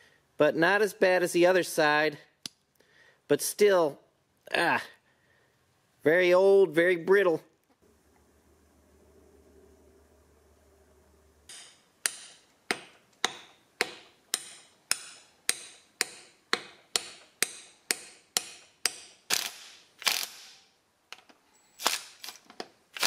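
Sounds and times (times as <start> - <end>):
hammer tapping metal: 11.5 - 19.2.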